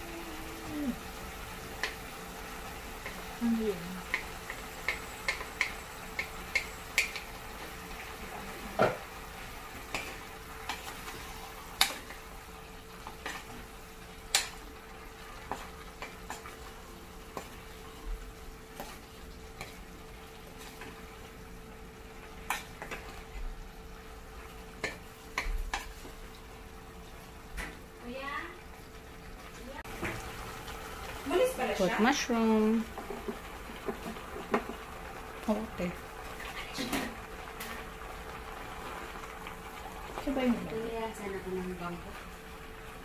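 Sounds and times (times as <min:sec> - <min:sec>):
faint frying sizzle: 0:00.0 - 0:43.0
wooden spatula stirring in pot: 0:02.7 - 0:23.6, 0:24.4 - 0:28.2.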